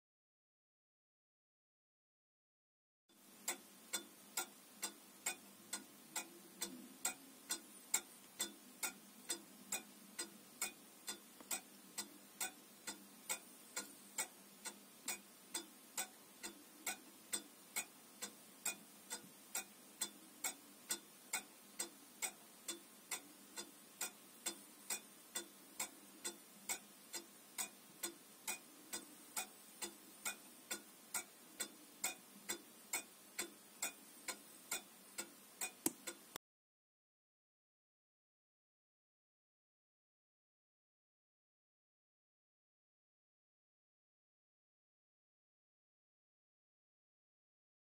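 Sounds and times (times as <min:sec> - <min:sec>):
pendulum clock ticking: 0:03.1 - 0:36.4.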